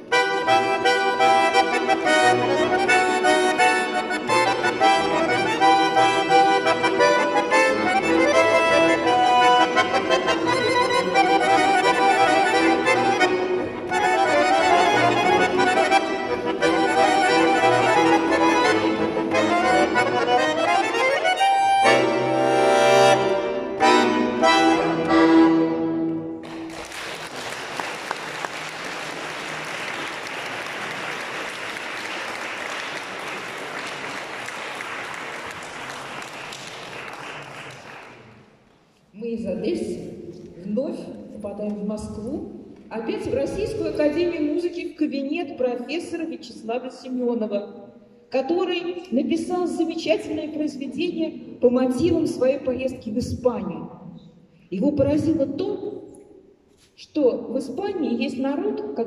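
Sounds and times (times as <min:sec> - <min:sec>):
button accordion playing fast: 0:00.0 - 0:26.3
audience applauding: 0:26.4 - 0:38.5.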